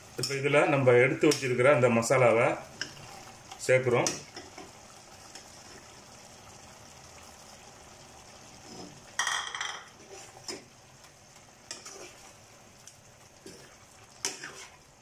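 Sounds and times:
chicken simmering in a pot: 0.0 - 15.0
steel spoon scraping a pot: 9.7 - 10.6, 11.7 - 12.3, 13.5 - 14.8.

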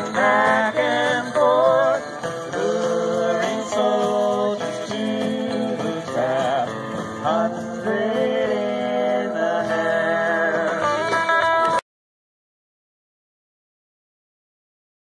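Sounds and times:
guitar accompaniment: 0.0 - 11.8
long sliding melody line: 0.0 - 11.8.

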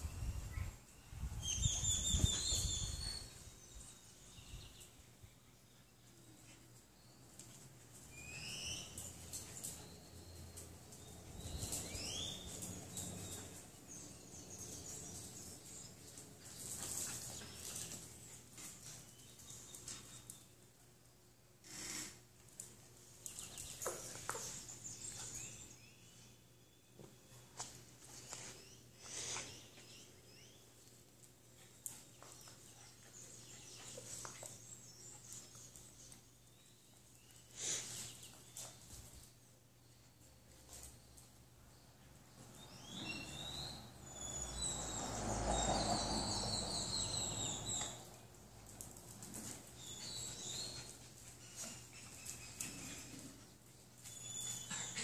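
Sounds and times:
faint background noise: 0.0 - 55.0
birds chirping: 0.2 - 20.6, 40.8 - 48.3, 49.0 - 55.0
small dogs playing on tile floor: 0.5 - 55.0.

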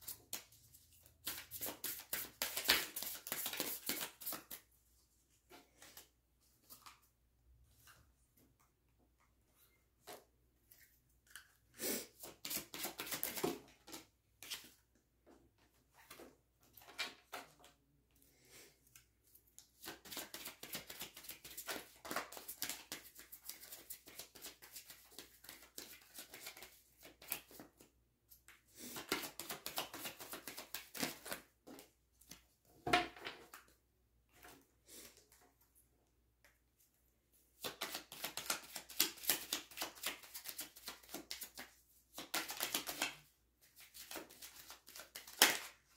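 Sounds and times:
cards being shuffled: 1.2 - 4.6, 12.2 - 14.7, 19.8 - 27.8, 28.8 - 32.4, 37.6 - 45.8.

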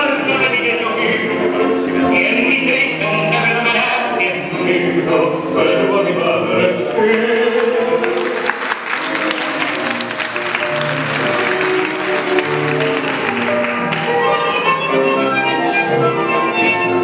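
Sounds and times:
tango music with singing: 0.0 - 17.0
audience applause: 7.1 - 14.6.

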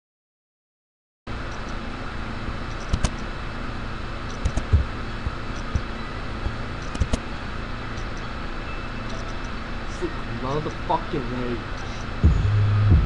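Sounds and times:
electrical hum and hiss: 1.3 - 13.0
clicks and low thumps: 4.3 - 7.2, 12.2 - 13.0.

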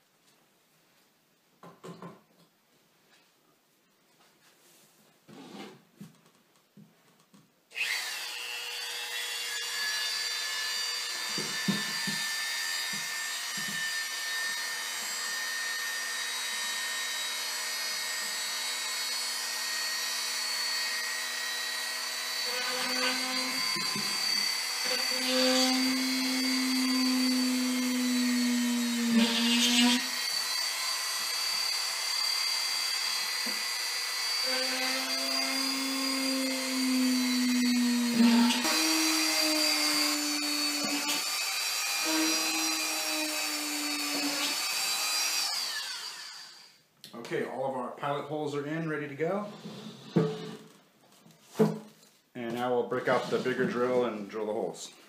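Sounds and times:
rotary tool high-pitched whine: 7.8 - 15.6, 16.2 - 46.8.

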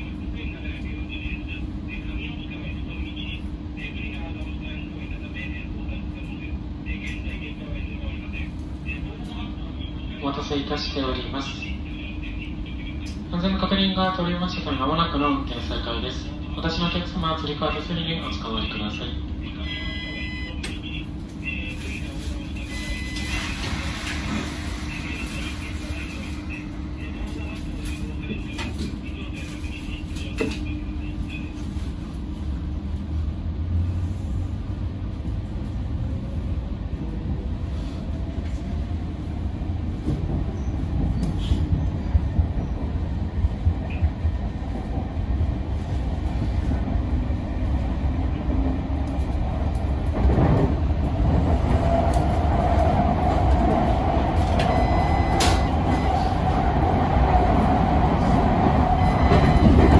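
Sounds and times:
train wheels rumbling on rail: 19.2 - 59.9.

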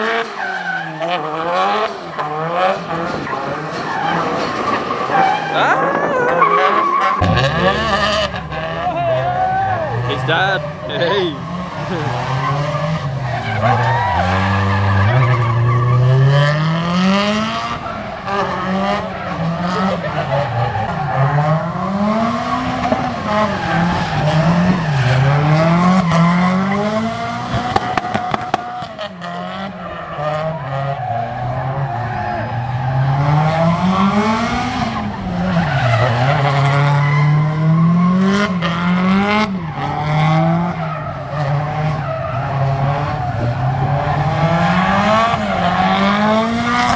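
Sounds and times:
car engine revving: 0.0 - 46.9
tyres skidding: 0.0 - 46.9.

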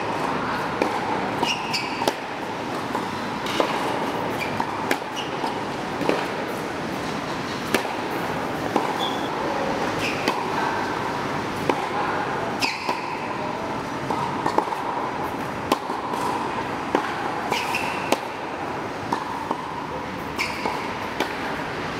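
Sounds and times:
racket striking ball: 0.0 - 6.7, 7.5 - 9.3, 10.0 - 10.8, 11.6 - 13.5, 14.1 - 21.6
steady background noise: 0.0 - 21.9
ball bouncing on hard court: 20.4 - 21.5.

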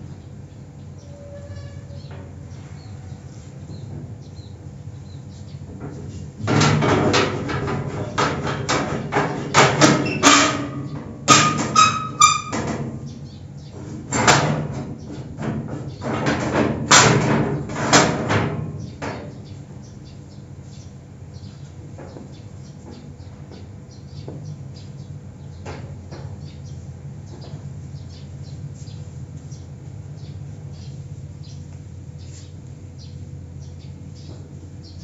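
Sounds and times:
rusty iron door creaking: 0.9 - 4.1, 5.7 - 19.7.

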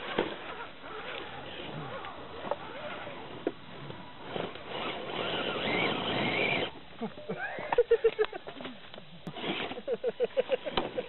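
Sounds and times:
motor and gear whine: 0.1 - 7.4.

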